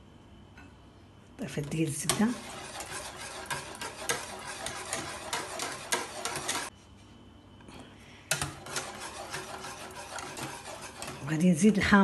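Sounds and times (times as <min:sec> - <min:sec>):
whisk scraping a saucepan: 0:01.6 - 0:06.7, 0:08.3 - 0:12.0.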